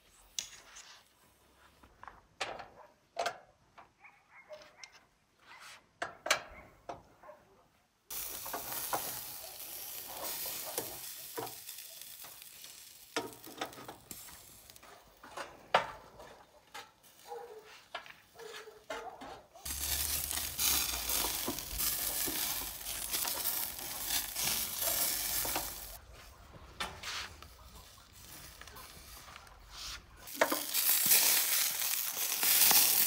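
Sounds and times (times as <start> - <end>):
food sizzling in pan: 8.1 - 15.0, 19.6 - 26.0, 30.3 - 33.0.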